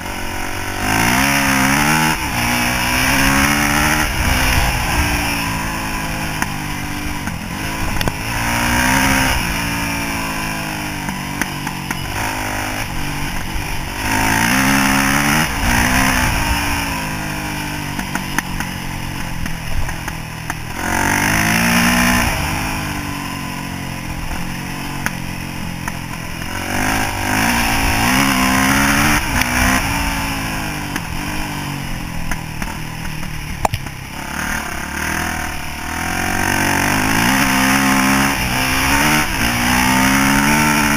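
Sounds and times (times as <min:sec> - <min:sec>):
dirt bike engine revving: 0:00.0 - 0:40.9
wind rushing over microphone: 0:01.9 - 0:05.9.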